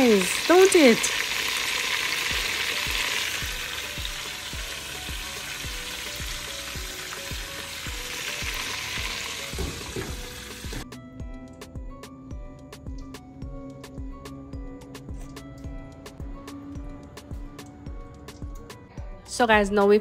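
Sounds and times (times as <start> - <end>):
hot oil sizzling: 0.0 - 10.8
background music with steady beat: 2.1 - 20.0.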